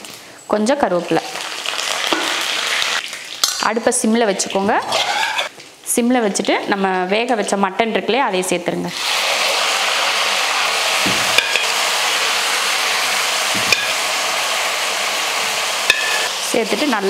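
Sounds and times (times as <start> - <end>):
meat sizzling in hot oil: 0.0 - 5.5, 8.9 - 17.0.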